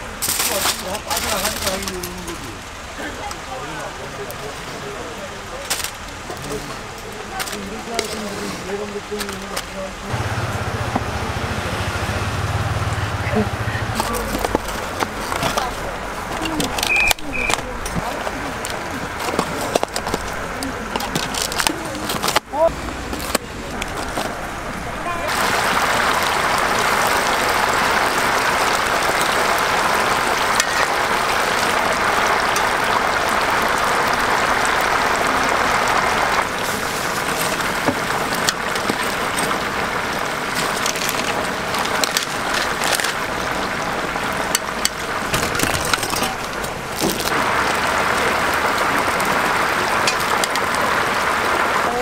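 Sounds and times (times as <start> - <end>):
oil sizzling and bubbling: 25.2 - 52.0.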